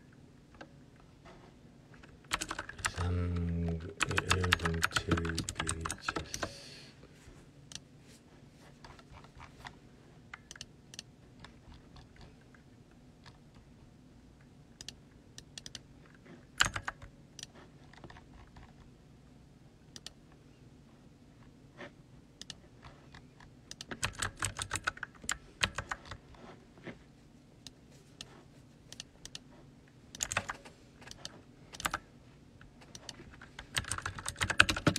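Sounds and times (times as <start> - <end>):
typing on computer keyboard: 2.3 - 3.1, 3.9 - 6.5, 16.6 - 17.1, 23.7 - 26.2, 30.2 - 32.0, 32.8 - 34.9.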